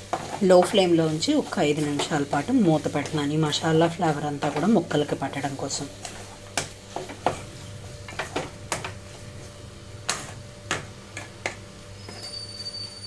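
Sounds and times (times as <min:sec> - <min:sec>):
spatula stirring potatoes in pan: 0:00.0 - 0:12.3
steady low hum: 0:00.0 - 0:12.3
spatula knocking on pan: 0:08.1 - 0:09.0, 0:10.0 - 0:11.7.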